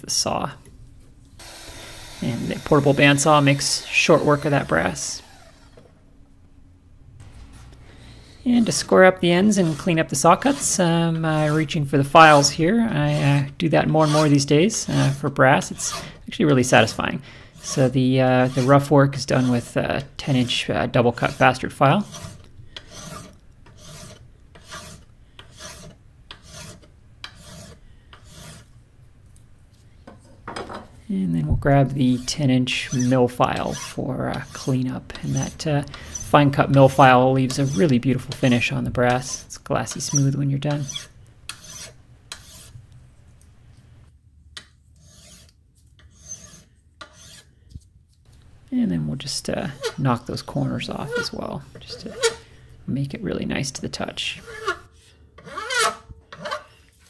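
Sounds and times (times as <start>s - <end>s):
file rasping on brass: 15.0s - 16.2s, 16.8s - 20.6s, 21.2s - 28.7s, 32.0s - 36.4s, 37.4s - 42.8s, 45.0s - 47.5s, 54.4s - 56.8s.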